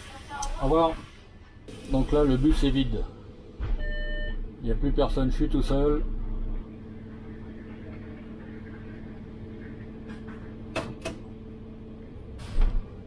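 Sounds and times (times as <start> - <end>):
steady mechanical hum: 0.0 - 13.0.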